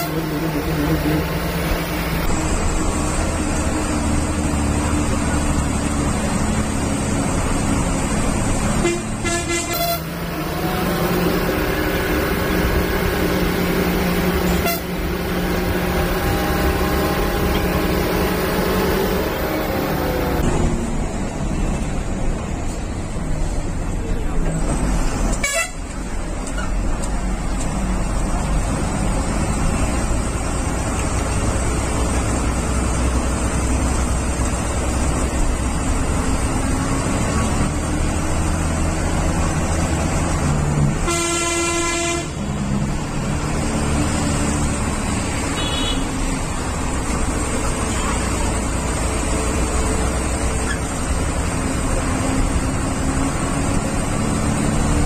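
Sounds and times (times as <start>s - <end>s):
vehicle horn: 0.0s - 1.4s, 8.8s - 10.4s, 14.4s - 15.2s, 25.4s - 25.8s, 41.0s - 42.5s, 45.5s - 46.2s
bus engine and road noise: 0.0s - 55.0s.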